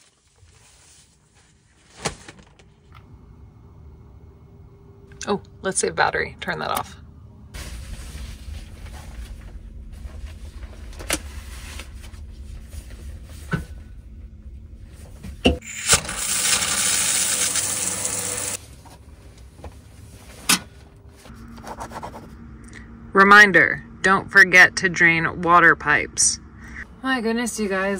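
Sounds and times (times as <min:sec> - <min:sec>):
low hum: 0:02.5 - 0:27.9
water spraying from shower head: 0:15.6 - 0:18.6.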